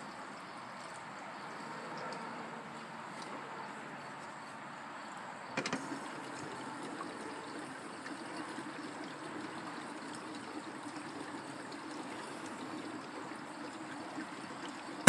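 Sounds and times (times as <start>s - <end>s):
sharp knocks: 5.6s - 5.9s
fuel pouring and gurgling: 5.6s - 15.0s.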